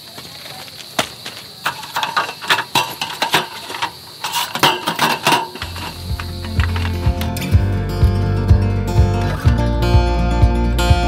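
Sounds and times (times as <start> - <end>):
guitar music: 5.6 - 11.0.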